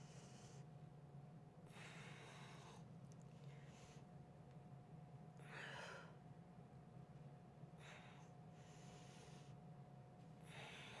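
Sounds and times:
woman breathing softly: 0:00.0 - 0:00.8, 0:01.6 - 0:04.3, 0:05.4 - 0:06.3, 0:07.7 - 0:09.7, 0:10.3 - 0:11.0
faint steady hum: 0:00.0 - 0:11.0.

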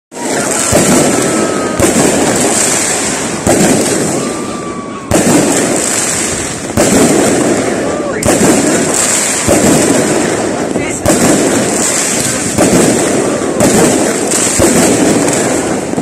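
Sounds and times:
fireworks banging: 0:00.1 - 0:16.0
fireworks crackling: 0:00.1 - 0:16.0.

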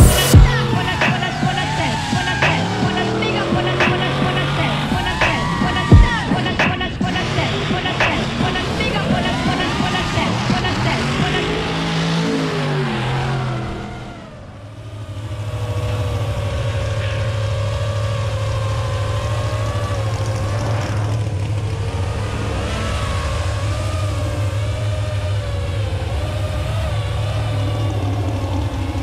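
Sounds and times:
truck engine rumbling at low revs: 0:00.0 - 0:29.0.

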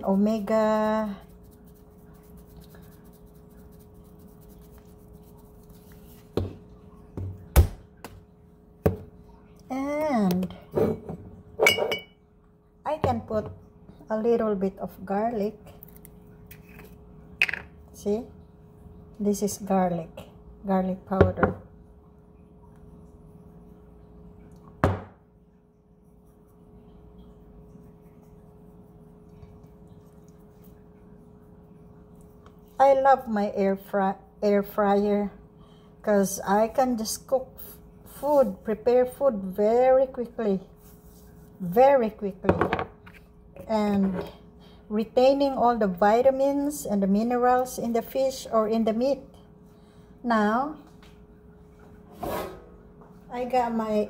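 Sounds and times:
faint steady hum: 0:00.0 - 0:54.0
knocks on wooden counter: 0:24.8 - 0:25.2.

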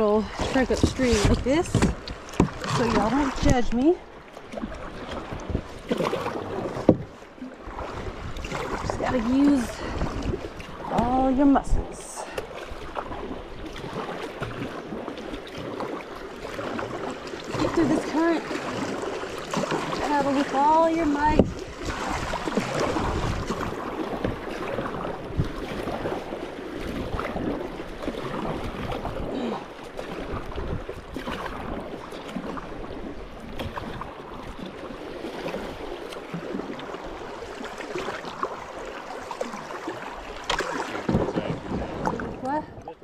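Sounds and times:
paddle strokes splashing: 0:00.0 - 0:43.0
water rushing along hull: 0:00.0 - 0:43.0
paddle knocks: 0:00.3 - 0:11.2, 0:11.8 - 0:29.3, 0:37.7 - 0:43.0.

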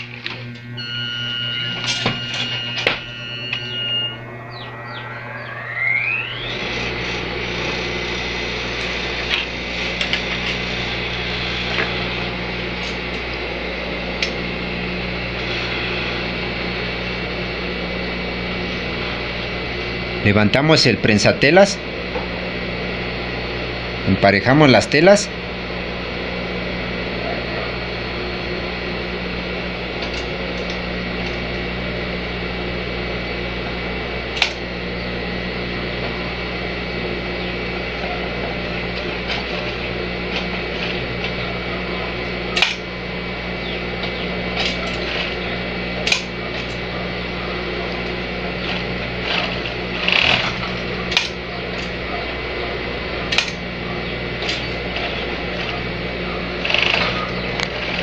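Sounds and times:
sewing machine humming: 0:06.4 - 0:17.5, 0:36.0 - 0:58.0.

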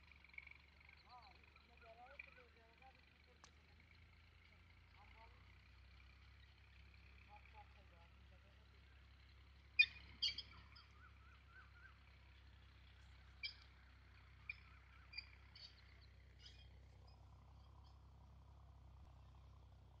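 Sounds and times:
low steady rumble: 0:00.0 - 0:20.0
bird chirps: 0:09.7 - 0:18.1.

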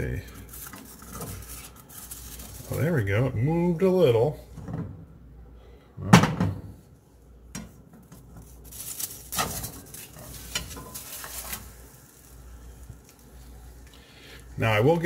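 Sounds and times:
faint sizzling: 0:08.6 - 0:15.0
spatula scraping a frying pan: 0:09.3 - 0:12.3.

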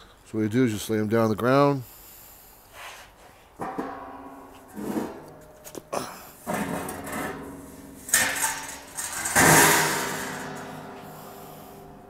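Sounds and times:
metal clang ringing: 0:03.6 - 0:12.0
metal fender clattering on concrete: 0:03.6 - 0:12.0.

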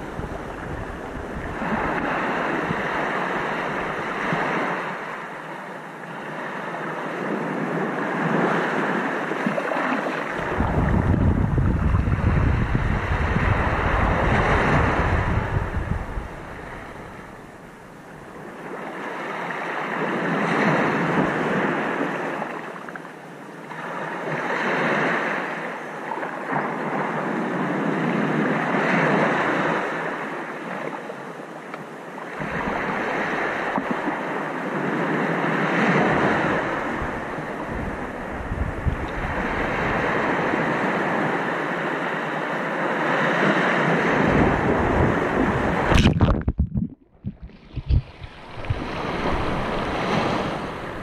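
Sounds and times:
ocean waves breaking: 0:00.0 - 0:23.0, 0:23.6 - 0:51.0.

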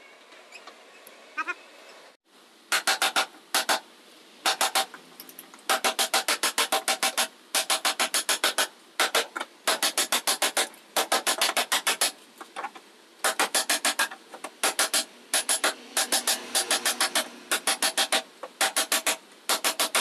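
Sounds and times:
hammer blows on sheet steel: 0:02.7 - 0:03.8, 0:04.4 - 0:04.9, 0:05.7 - 0:12.2, 0:13.2 - 0:20.0.

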